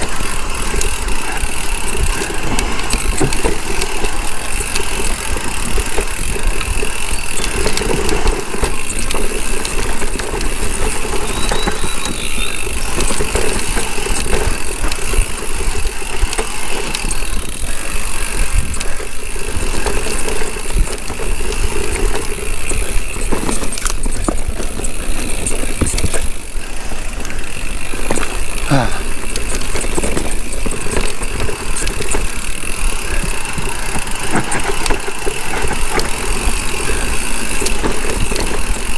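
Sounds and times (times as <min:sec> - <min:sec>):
mountain bike rattling: 0:00.0 - 0:38.9
wind noise on microphone: 0:13.8 - 0:26.3.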